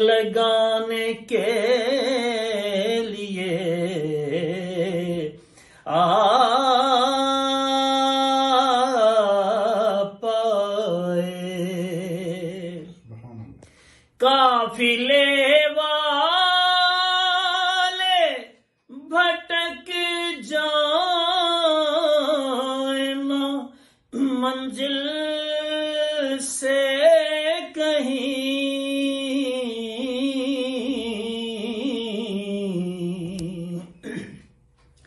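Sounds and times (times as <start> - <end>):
man singing unaccompanied: 0.0 - 13.6, 14.2 - 34.2.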